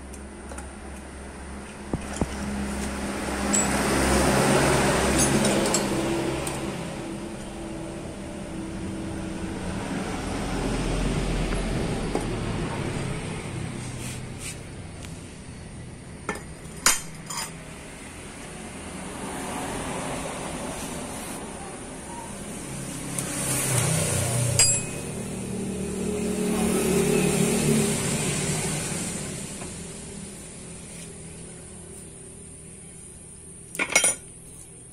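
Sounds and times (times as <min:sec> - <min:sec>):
vehicle engine passing by: 0:01.5 - 0:15.5, 0:17.7 - 0:31.2.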